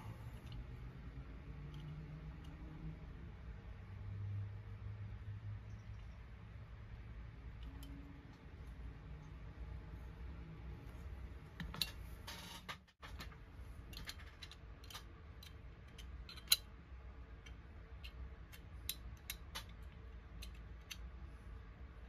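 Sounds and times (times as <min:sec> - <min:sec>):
toy parts clicking and tapping: 0:13.9 - 0:16.6.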